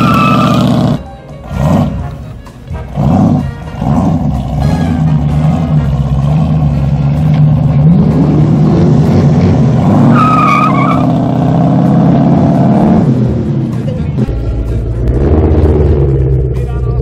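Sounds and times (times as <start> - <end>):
high tyre squeal: 0.0 - 2.0, 2.9 - 7.0, 9.8 - 11.8
car engine at high revs: 0.0 - 2.1, 2.9 - 16.7.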